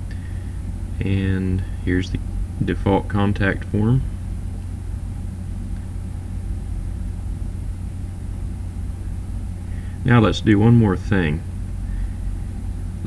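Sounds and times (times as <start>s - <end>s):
low hum: 0.0s - 13.0s.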